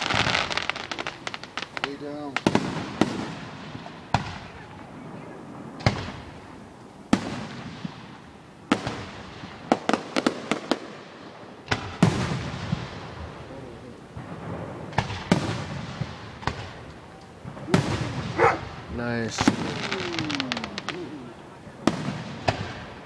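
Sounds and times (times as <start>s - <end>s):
small firework pops: 0.0s - 4.9s, 5.8s - 10.9s, 14.2s - 18.4s, 19.3s - 22.9s
firework booms: 0.0s - 23.0s.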